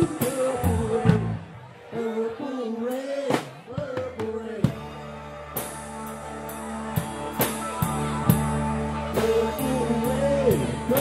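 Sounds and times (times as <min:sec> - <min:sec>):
electric guitar chords: 0:04.6 - 0:11.0
keyboard chords: 0:04.7 - 0:11.0.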